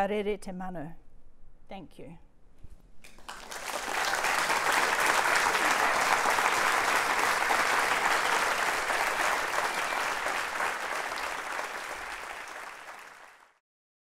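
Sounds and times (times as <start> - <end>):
audience applauding: 3.1 - 13.6.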